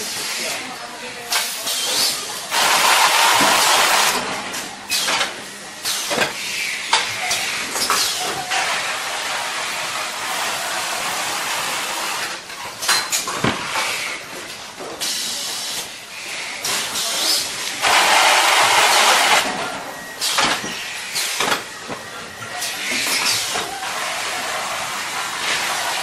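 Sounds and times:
carton sealing machine hissing: 1.6 - 4.3, 15.0 - 19.5.

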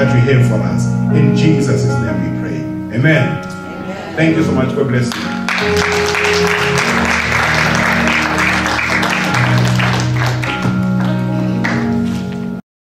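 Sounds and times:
music with held low chords: 0.0 - 12.6
applause: 5.1 - 11.9.

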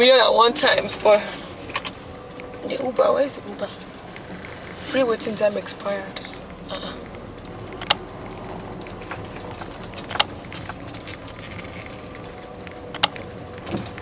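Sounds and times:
car rumbling: 0.0 - 14.0
sharp clicks: 6.2 - 11.4, 12.1 - 14.0.

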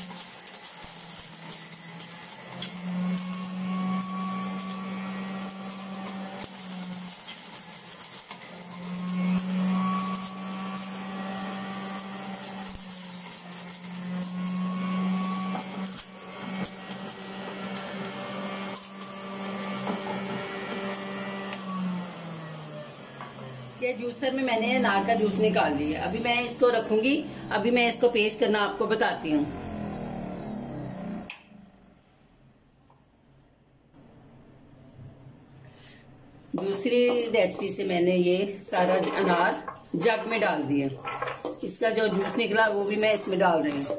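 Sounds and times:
juicer motor humming: 0.0 - 31.9.

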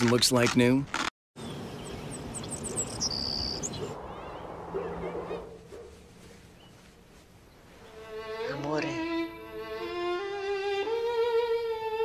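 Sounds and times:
bird chirps: 1.4 - 6.9.

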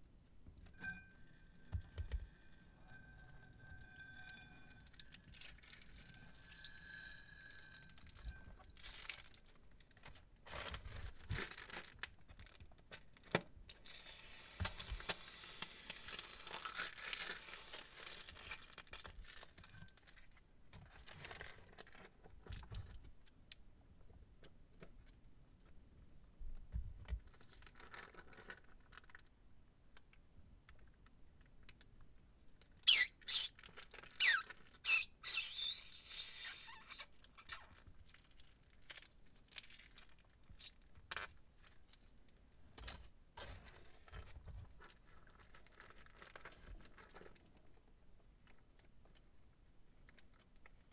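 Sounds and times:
thin squeak: 0.8 - 4.9, 32.9 - 33.6, 34.2 - 37.7
plastic bags crinkling: 8.7 - 12.8, 14.7 - 22.1.

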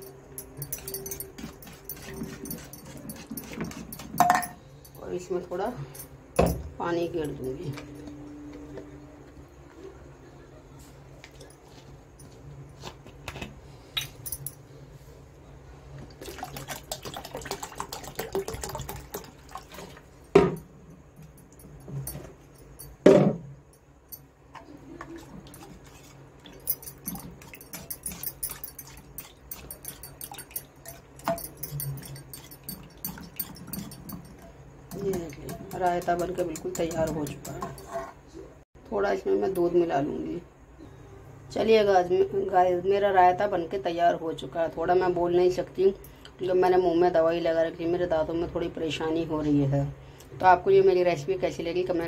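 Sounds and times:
liquid sloshing in a bowl: 16.0 - 20.3, 24.6 - 38.1
whisk wires clicking on metal bowl: 26.6 - 37.9.

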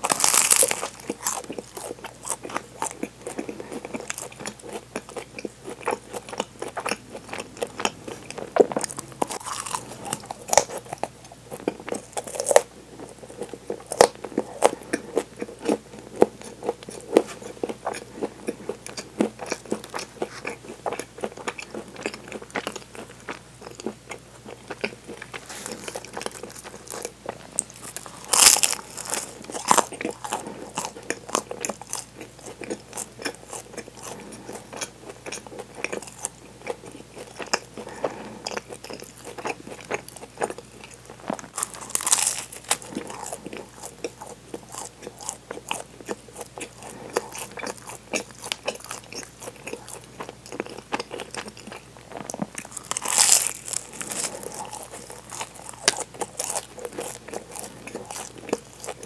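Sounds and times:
crunching bites into pastry: 0.0 - 4.6, 8.6 - 12.7, 24.7 - 34.2, 38.5 - 59.0
chewing: 0.0 - 59.0.

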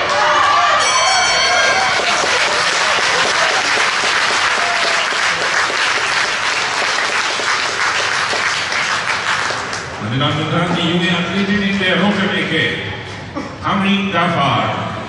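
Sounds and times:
audience applauding: 1.6 - 10.0.

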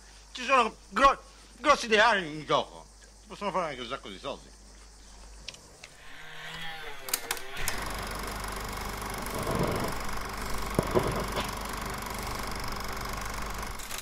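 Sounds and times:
film projector clattering: 7.1 - 14.0.

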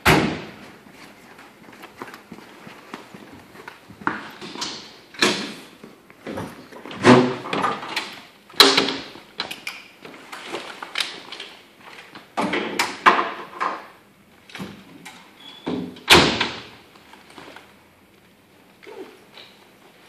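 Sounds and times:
footsteps on floor: 0.6 - 4.5.

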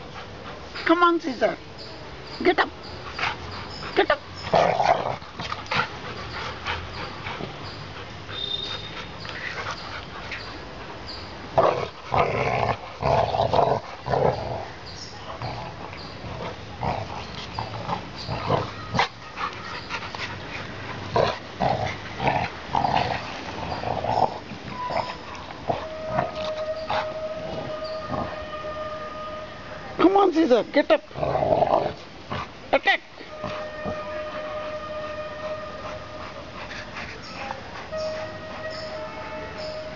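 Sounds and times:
dogs growling and grunting: 4.4 - 6.0, 11.6 - 19.5, 20.9 - 28.4, 31.1 - 32.6.

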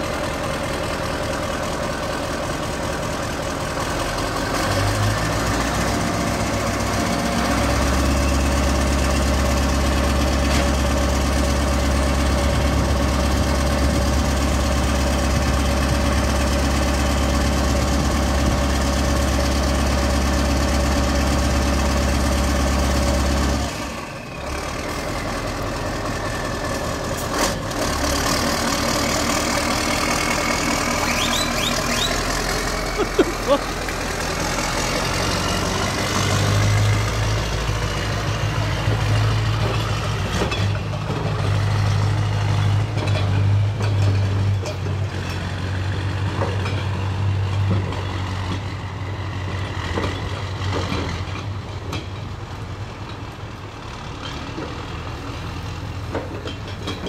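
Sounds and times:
diesel truck engine idling: 0.0 - 42.9.

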